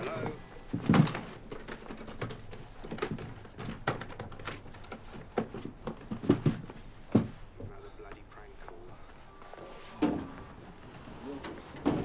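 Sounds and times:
suitcase thumps and scuffling: 0.7s - 1.8s, 5.0s - 7.6s.

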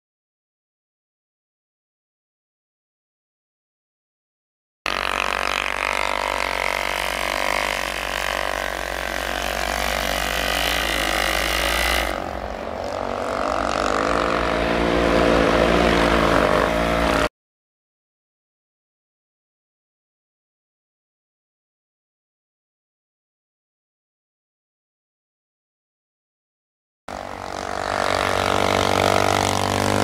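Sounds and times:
atv engine: 4.9s - 17.3s, 27.1s - 30.0s
engine running hard in snow: 4.9s - 17.3s, 27.1s - 30.0s.

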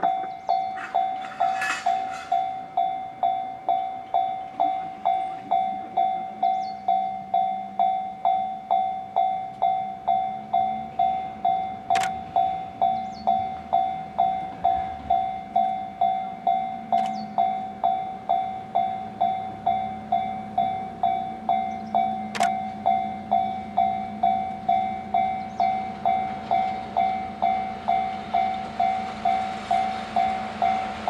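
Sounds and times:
electric locomotive hum: 0.0s - 31.0s
level crossing bell ringing: 0.0s - 31.0s
sharp click: 11.9s - 12.2s, 22.3s - 22.6s.

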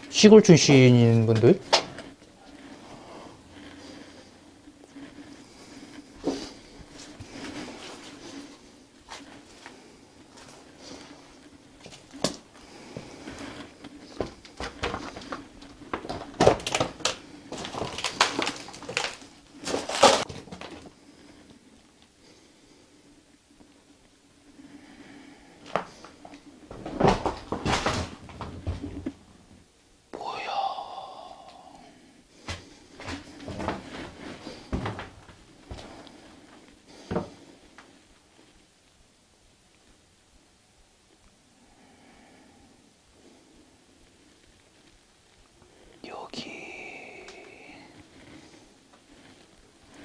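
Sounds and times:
footsteps crunching on rubble: 25.7s - 29.0s.

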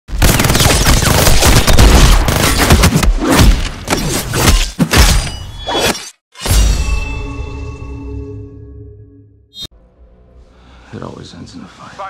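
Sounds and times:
rapid gunfire: 0.1s - 4.2s.

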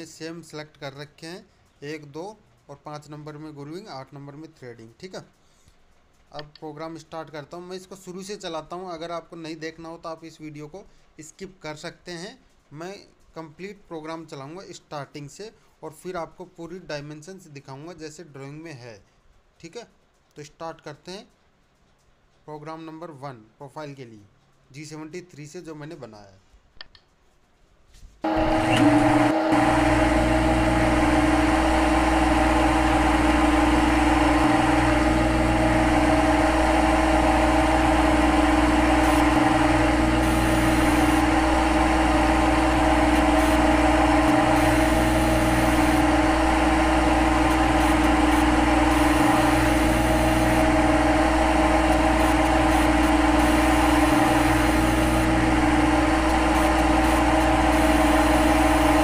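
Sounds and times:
synthetic lathe machining hum: 28.3s - 59.0s.

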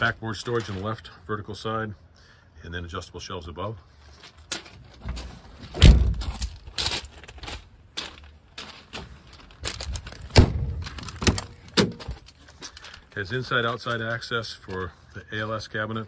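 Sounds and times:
door slam: 5.7s - 6.4s
hard clunk: 10.3s - 12.3s
latch clicks and knocks: 10.4s - 12.3s.

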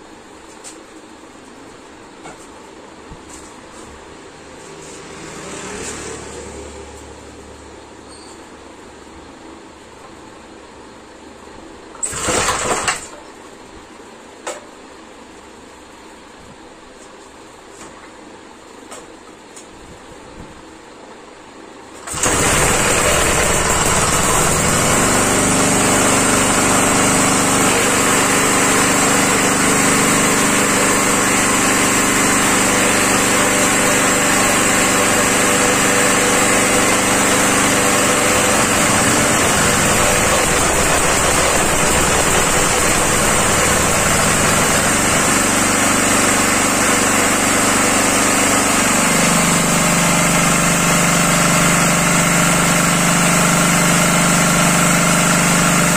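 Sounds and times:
single-cylinder engine running: 11.9s - 13.2s, 22.0s - 55.9s.

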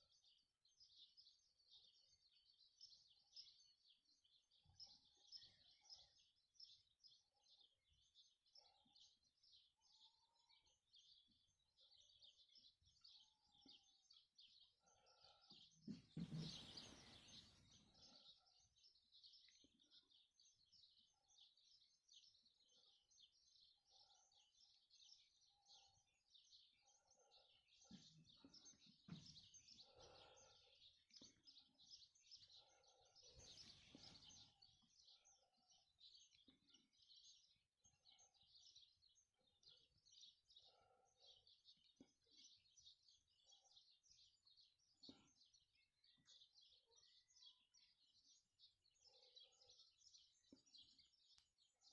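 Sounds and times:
small birds chirping: 0.0s - 51.9s.

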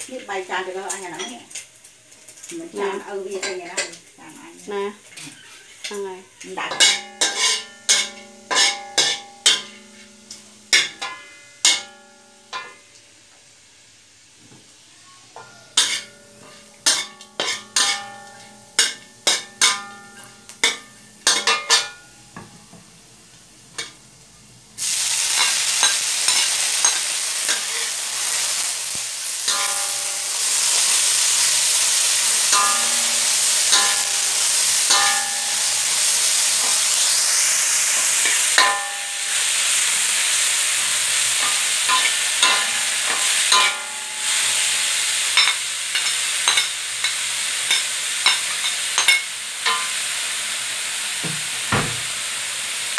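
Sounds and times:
ginger sizzling in hot oil: 0.0s - 52.9s
metal spatula clinking on wok: 6.7s - 12.8s, 15.4s - 22.1s, 29.5s - 30.2s, 32.5s - 34.3s, 34.9s - 35.8s, 38.6s - 39.2s, 41.4s - 44.3s, 45.4s - 50.0s.

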